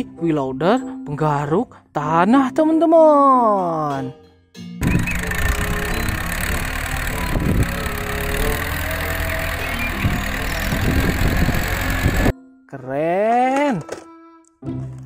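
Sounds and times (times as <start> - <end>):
background music: 0.0 - 15.0
diesel engine running: 4.8 - 12.3.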